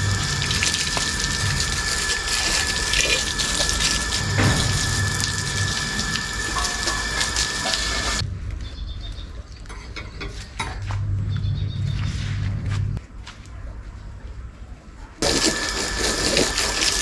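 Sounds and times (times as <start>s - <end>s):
hose water spraying: 0.0s - 8.2s, 15.2s - 17.0s.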